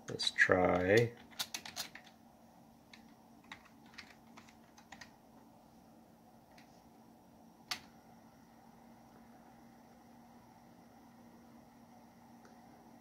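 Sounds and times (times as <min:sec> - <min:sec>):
keystrokes on computer keyboard: 0:00.7 - 0:02.2, 0:02.9 - 0:05.2.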